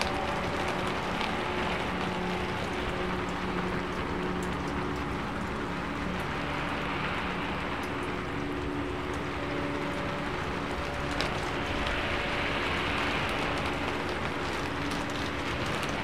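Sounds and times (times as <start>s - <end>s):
rain drop ticks: 0.0s - 16.0s
steady rain falling: 0.0s - 16.0s.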